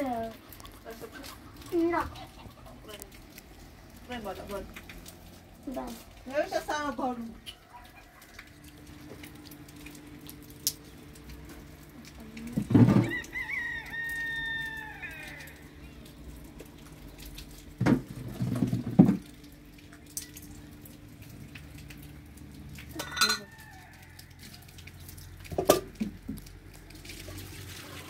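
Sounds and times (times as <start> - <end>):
rooster crowing: 7.5 - 8.8, 12.9 - 15.8, 23.0 - 24.8.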